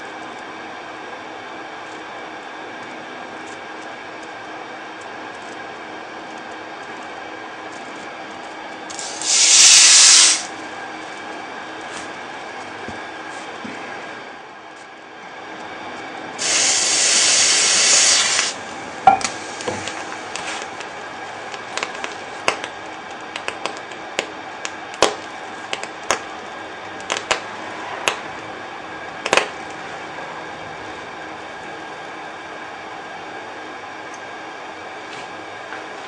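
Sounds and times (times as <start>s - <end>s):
water sizzling on hotplate: 8.9s - 10.6s, 16.4s - 18.6s.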